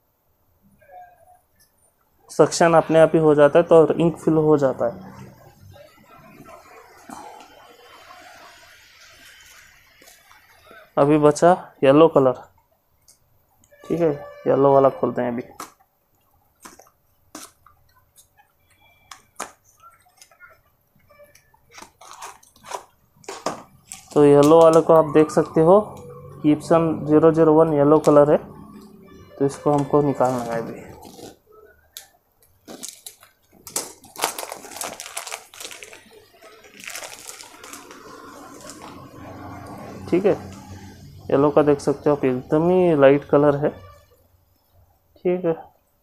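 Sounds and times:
packaging crinkling and rustling: 15.5 - 25.0, 29.6 - 39.2.

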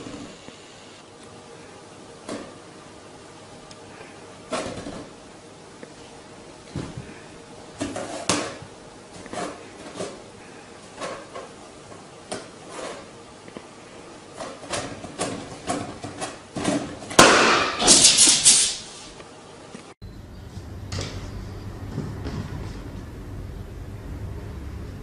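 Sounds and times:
noisy scuffling: 18.9 - 23.8.

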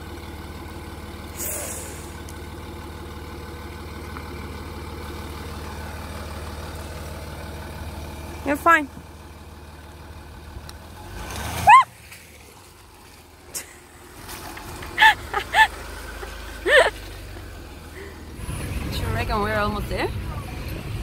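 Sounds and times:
car engine running low: 0.0 - 21.0.

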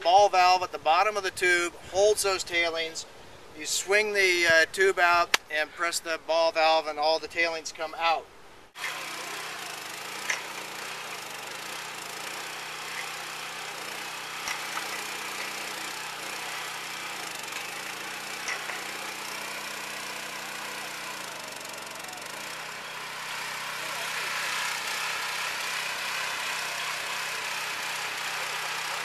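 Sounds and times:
small gasoline engine running: 8.8 - 29.0.

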